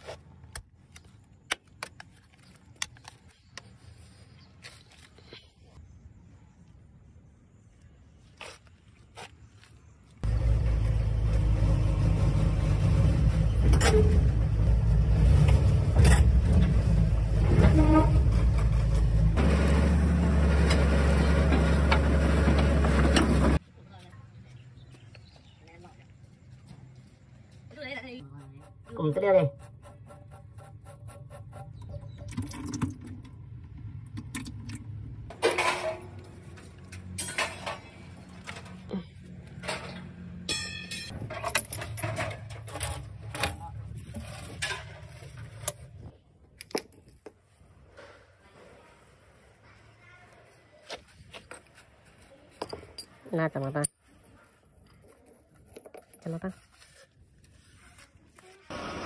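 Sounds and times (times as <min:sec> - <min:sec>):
excavator diesel engine running: 0:10.2 - 0:23.6
metal scrape: 0:44.0 - 0:45.8.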